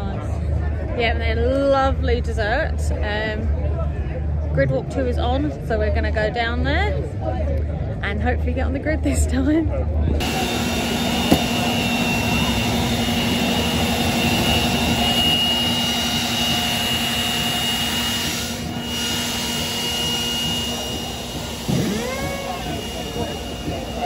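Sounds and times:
machine drone with high whine: 0:10.2 - 0:24.0.

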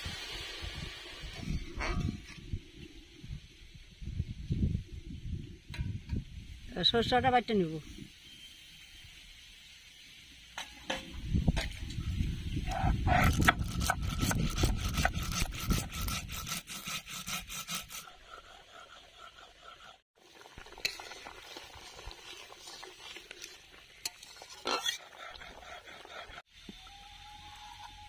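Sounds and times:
faint steady hiss: 0:02.3 - 0:12.6
stone grinding on stone: 0:12.7 - 0:20.0, 0:24.2 - 0:26.4.

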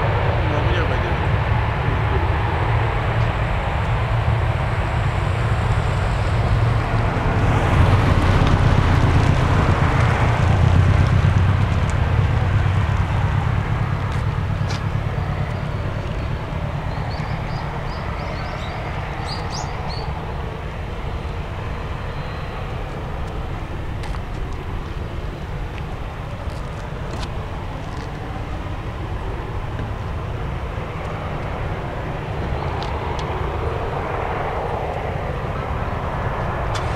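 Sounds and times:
jet engines rumbling: 0:00.0 - 0:36.9.

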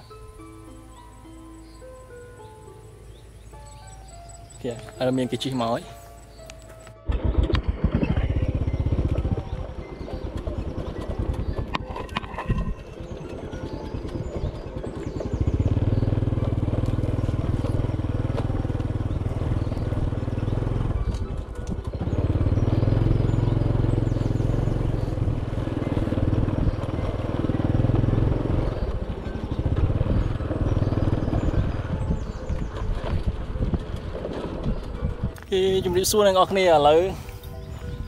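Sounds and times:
motorcycle knocking over bumps: 0:06.6 - 0:35.4
motorcycle engine under throttle: 0:07.0 - 0:35.4.

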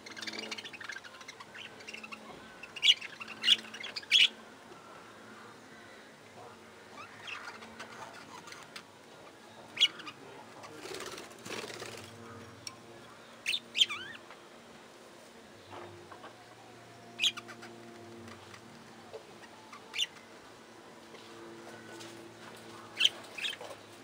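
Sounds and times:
budgerigars chirping: 0:00.1 - 0:04.4, 0:07.0 - 0:08.8, 0:17.2 - 0:17.7, 0:19.4 - 0:20.2, 0:23.0 - 0:23.7
wing flapping: 0:10.8 - 0:12.2.

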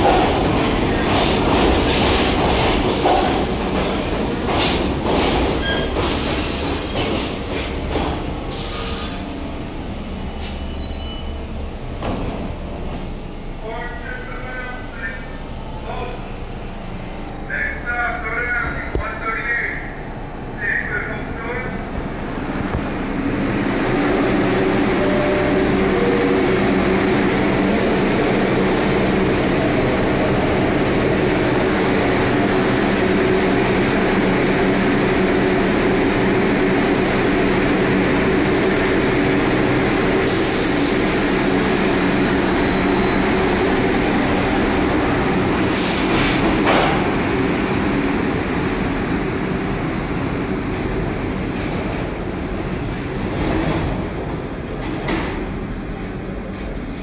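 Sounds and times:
subway train humming: 0:00.0 - 0:57.0
train pulling out: 0:00.0 - 0:57.0
air hissing: 0:08.5 - 0:09.3, 0:40.2 - 0:43.3, 0:45.6 - 0:46.5.

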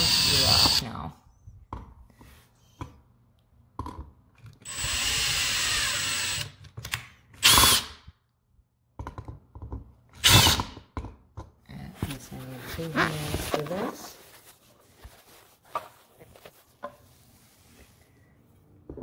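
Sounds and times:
cordless drill motor whine: 0:00.0 - 0:00.8, 0:04.6 - 0:06.5.

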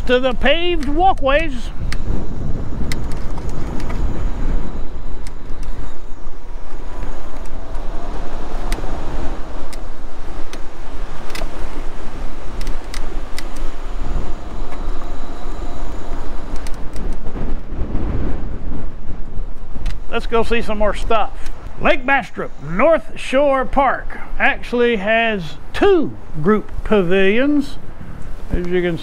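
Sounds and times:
sharp clicks: 0:00.0 - 0:02.1, 0:02.8 - 0:04.1, 0:05.2 - 0:06.0, 0:09.6 - 0:11.8, 0:12.5 - 0:13.8, 0:16.5 - 0:17.3, 0:19.5 - 0:20.1, 0:21.3 - 0:21.8
wind buffeting microphone: 0:00.0 - 0:29.0.

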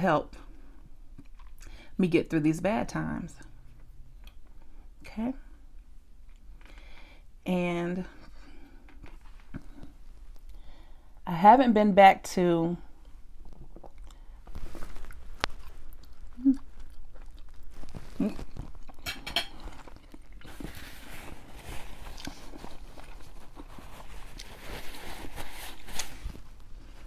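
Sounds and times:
person chewing food: 0:00.8 - 0:01.7, 0:05.7 - 0:07.0, 0:13.0 - 0:27.0.

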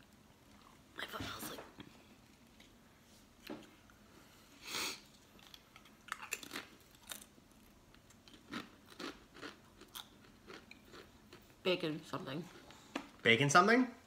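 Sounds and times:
chewing crunches: 0:05.3 - 0:11.5.

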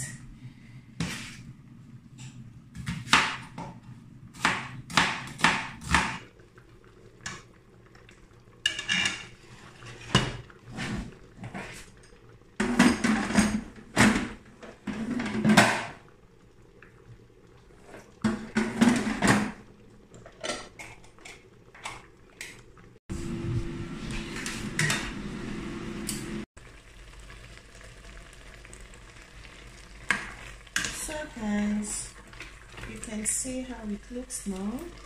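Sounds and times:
pots and utensils clanking: 0:08.6 - 0:16.0, 0:17.8 - 0:19.6, 0:20.2 - 0:22.6, 0:24.1 - 0:25.2, 0:30.1 - 0:31.2.

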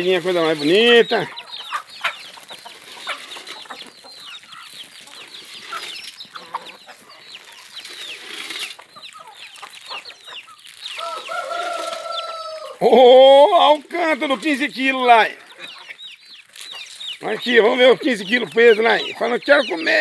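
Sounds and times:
chickens clucking: 0:00.0 - 0:20.0
rooster crowing: 0:11.0 - 0:12.8.

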